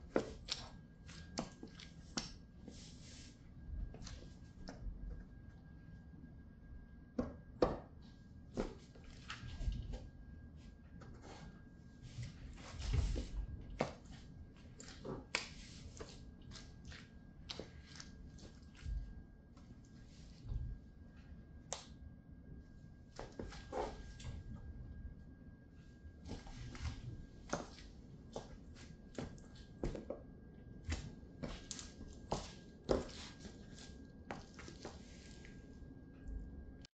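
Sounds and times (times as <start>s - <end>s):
wet squelching: 0.3s - 3.2s, 13.8s - 19.0s, 30.9s - 35.6s.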